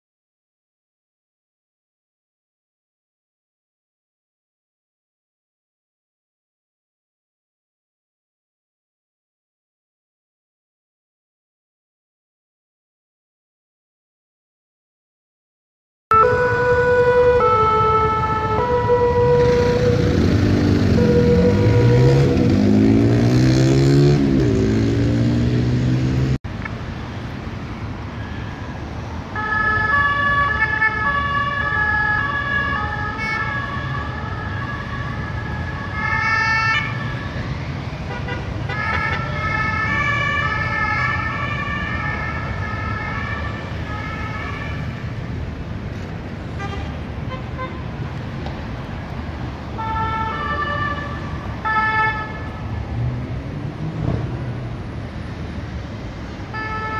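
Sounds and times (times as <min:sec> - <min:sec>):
two-tone sirens: 0:16.1 - 0:23.3, 0:28.2 - 0:45.4, 0:49.6 - 0:52.8, 0:54.4 - 0:56.9
vehicle engine rising in pitch: 0:16.1 - 0:26.4
city traffic noise: 0:16.1 - 0:56.9.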